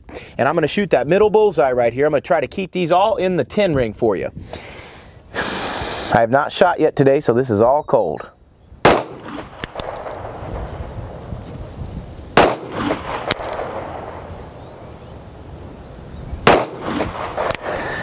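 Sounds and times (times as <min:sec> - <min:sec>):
pistol shots: 0:08.8 - 0:10.4, 0:12.4 - 0:14.3, 0:16.4 - 0:18.0.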